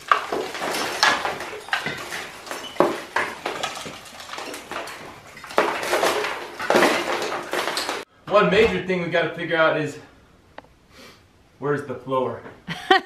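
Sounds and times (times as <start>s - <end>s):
tool chipping brick and mortar: 0.0s - 8.1s.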